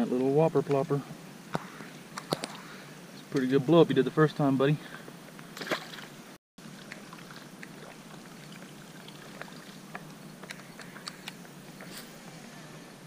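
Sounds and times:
steady outdoor hiss: 0.0s - 13.0s.

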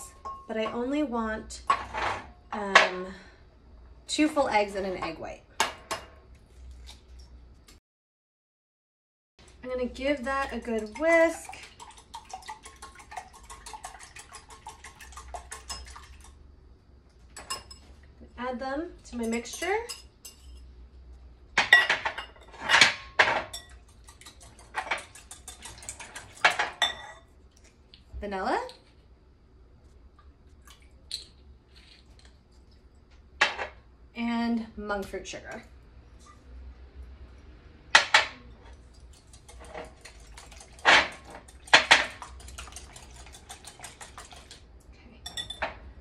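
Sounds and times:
whisk ticking against bowl: 10.3s - 16.4s, 23.5s - 26.5s, 41.4s - 44.6s
wire whisk clinking in glass bowl: 45.2s - 45.7s.

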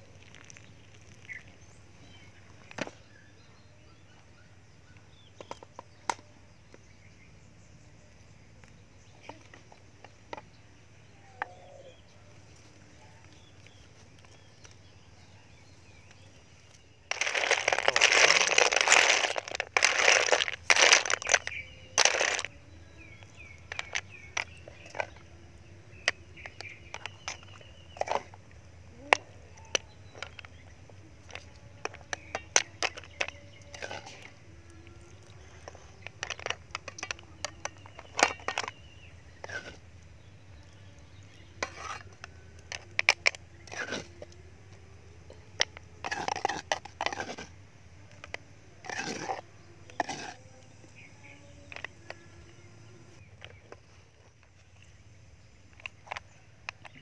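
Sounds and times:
shells clattering: 17.1s - 22.5s
shells clicking and crackling: 17.1s - 25.3s, 25.9s - 38.8s.

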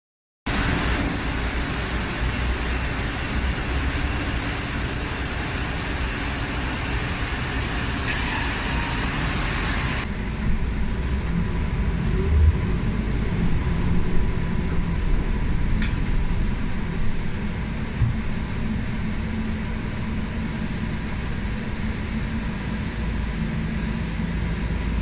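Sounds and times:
high thin squeal: 0.5s - 10.0s
diesel bus running: 0.5s - 25.0s
engine and road hum inside bus: 0.5s - 25.0s.

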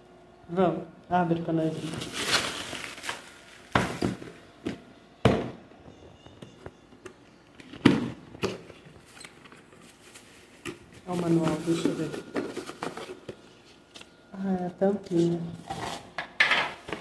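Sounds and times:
bubble wrap rustling: 1.6s - 4.4s, 8.7s - 14.1s.

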